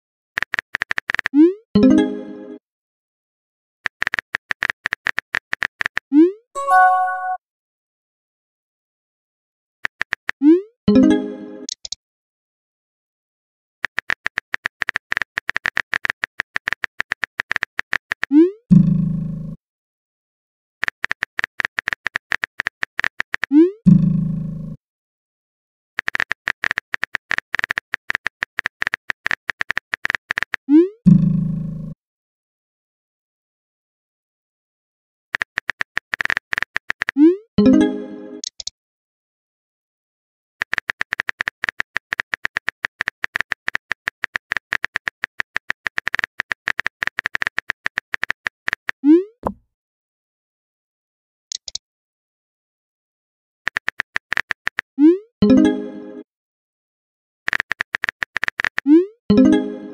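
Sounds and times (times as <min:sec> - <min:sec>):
phone keyboard typing clicks: 0:00.4 - 0:01.4, 0:13.8 - 0:18.3, 0:26.0 - 0:30.6, 0:35.4 - 0:37.2, 0:40.6 - 0:49.6, 0:51.5 - 0:51.8, 0:53.7 - 0:54.9, 0:57.5 - 0:58.9.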